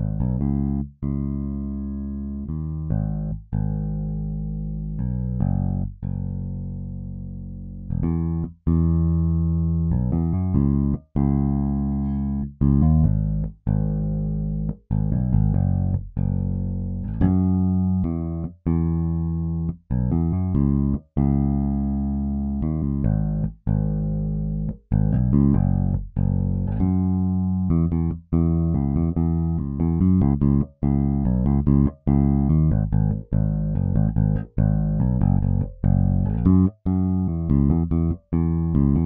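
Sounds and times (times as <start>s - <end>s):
electric bass groove: 0.0s - 39.0s.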